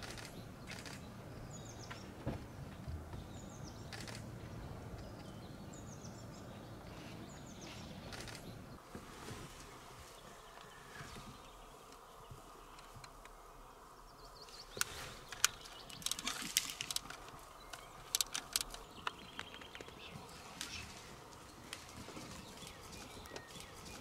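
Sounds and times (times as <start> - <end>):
faint outdoor background: 0.0 - 24.0
twigs snapping and crackling: 14.7 - 20.0.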